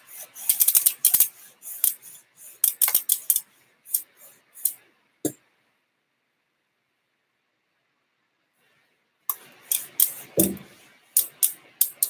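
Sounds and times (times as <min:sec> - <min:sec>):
hand rubbing bike rim: 0:00.0 - 0:04.8, 0:09.7 - 0:12.0.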